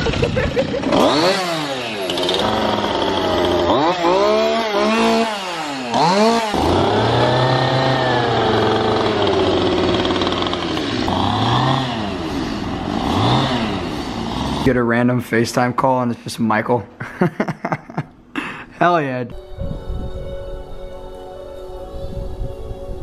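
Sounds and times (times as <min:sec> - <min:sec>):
chainsaw revving: 0:00.0 - 0:14.8.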